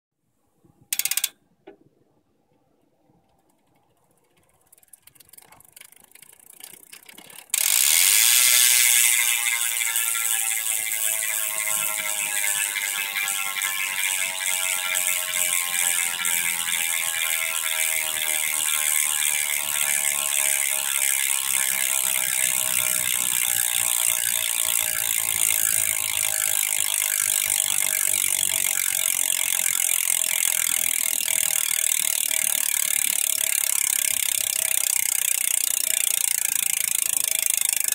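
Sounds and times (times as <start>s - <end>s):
bicycle hub freewheeling buzz: 0.9s - 1.4s, 3.4s - 37.9s.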